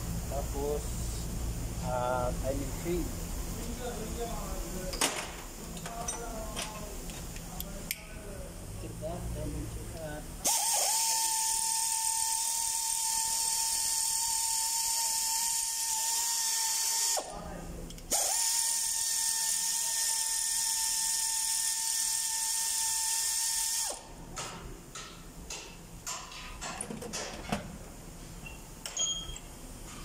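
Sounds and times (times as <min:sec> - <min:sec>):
pneumatic air ratchet whining: 0:10.4 - 0:17.3, 0:18.0 - 0:24.1.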